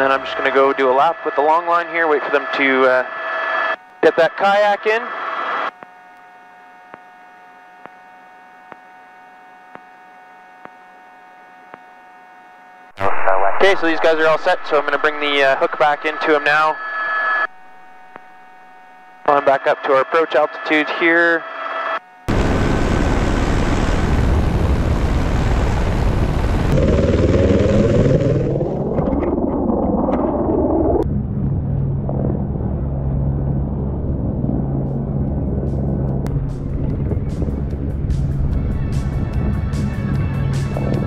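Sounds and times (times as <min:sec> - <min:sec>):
helicopter rotor and engine: 0:21.4 - 0:28.4.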